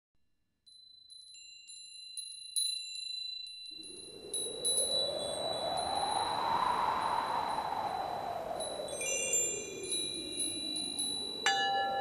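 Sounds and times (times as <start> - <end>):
high chime tinkles: 0.7 - 5.4, 8.9 - 12.0.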